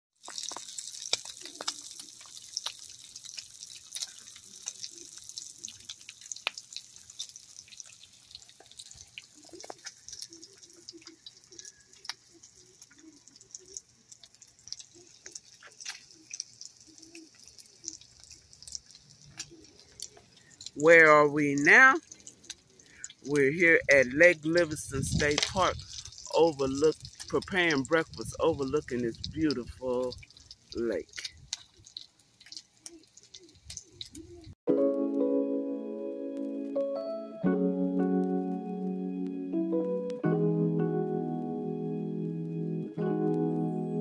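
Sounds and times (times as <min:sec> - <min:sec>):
bacon sizzling: 0:00.2 - 0:34.6
fat crackling and popping: 0:00.2 - 0:34.6.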